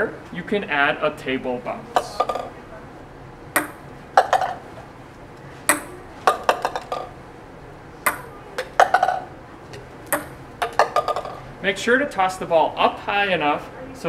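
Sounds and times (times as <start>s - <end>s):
ball rattling in plastic cup: 2.0s - 2.5s, 4.2s - 4.6s, 6.3s - 7.1s, 8.1s - 9.3s, 10.2s - 11.4s
ping pong ball bouncing on desk: 2.0s - 2.5s, 3.6s - 4.6s, 5.7s - 7.1s, 8.1s - 9.3s, 10.1s - 11.4s.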